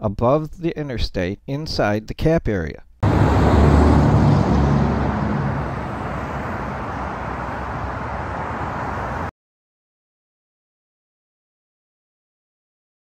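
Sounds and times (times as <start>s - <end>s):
expressway traffic noise: 3.0s - 9.3s
truck passing with deep rumble: 3.0s - 9.3s.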